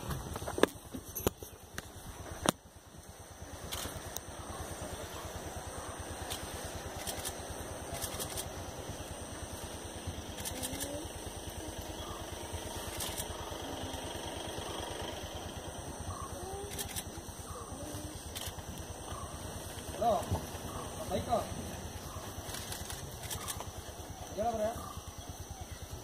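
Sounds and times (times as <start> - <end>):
vehicle engine idling: 0.0 - 26.0
sharp clicks: 3.6 - 4.3, 6.2 - 8.6, 10.3 - 11.0, 12.8 - 13.6, 16.5 - 17.2, 18.3 - 19.2, 22.4 - 23.8.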